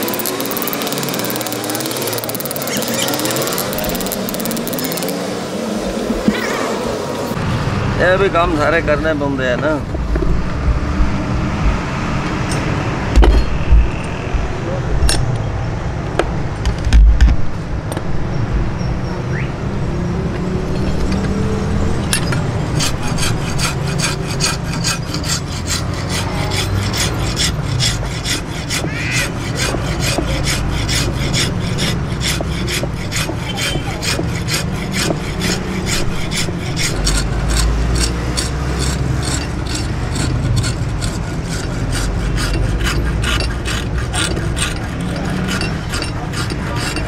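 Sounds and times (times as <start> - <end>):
file rasping on steel blade: 0.0 - 5.2, 22.7 - 47.0.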